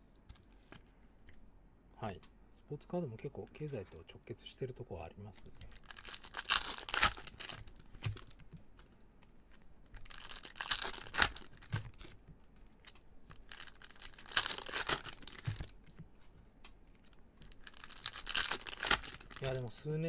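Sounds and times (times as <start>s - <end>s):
foil wrapper tearing and crinkling: 5.6s - 8.4s, 9.9s - 12.2s, 13.3s - 15.8s, 17.4s - 19.7s.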